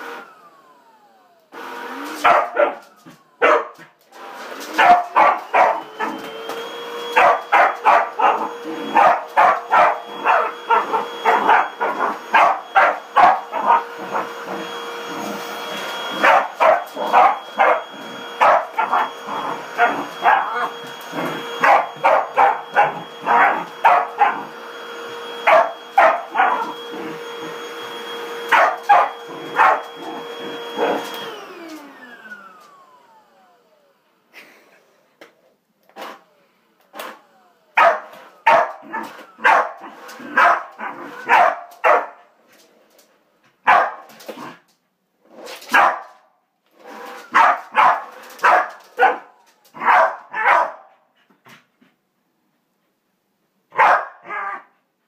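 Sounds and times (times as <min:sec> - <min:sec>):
stick vacuum cleaner whine: 0:00.0 - 0:50.6
dog barking: 0:02.2 - 0:02.8, 0:03.4 - 0:03.8, 0:04.8 - 0:06.2, 0:07.1 - 0:13.9, 0:16.2 - 0:19.1, 0:19.8 - 0:20.7, 0:21.6 - 0:24.5, 0:25.4 - 0:26.8, 0:28.5 - 0:30.0, 0:37.8 - 0:42.2, 0:43.6 - 0:44.1, 0:45.7 - 0:46.2, 0:47.3 - 0:51.0, 0:53.7 - 0:54.7.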